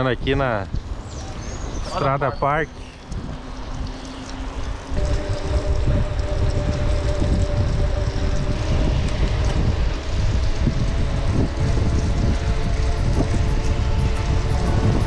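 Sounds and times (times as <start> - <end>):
wind rumbling on microphone: 0.0 - 15.0
steady hum: 3.3 - 15.0.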